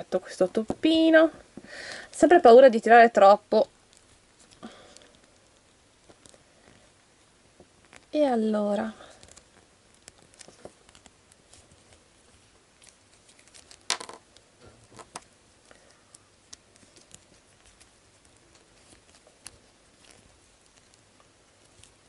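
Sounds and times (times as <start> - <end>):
fingers handling plastic doll: 9.1 - 22.0.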